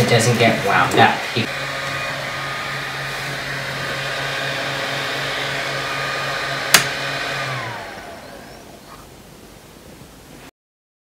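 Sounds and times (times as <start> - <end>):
cooling fans whirring: 0.0 - 10.5
power switch click: 6.7 - 7.0.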